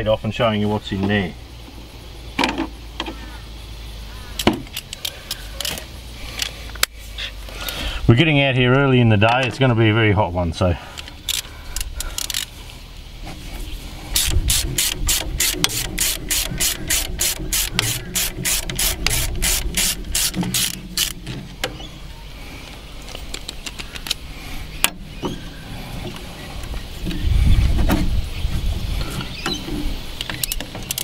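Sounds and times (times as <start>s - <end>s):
spanner clicking on a bolt: 11.3s - 12.5s, 14.2s - 21.3s, 30.2s - 31.0s.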